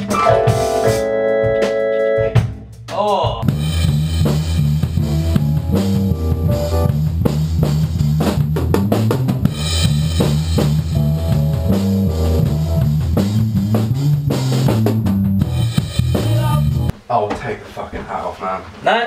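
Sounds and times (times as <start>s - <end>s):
keyboard playing chords: 0.0s - 2.7s, 3.5s - 7.2s, 9.4s - 16.9s
drum kit beat: 0.0s - 16.9s
electric bass line: 3.4s - 16.9s.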